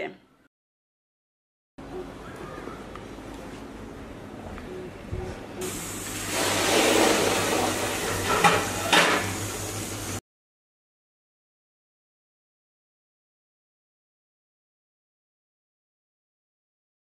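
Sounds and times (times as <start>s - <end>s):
steam hissing from vent: 5.6s - 10.2s.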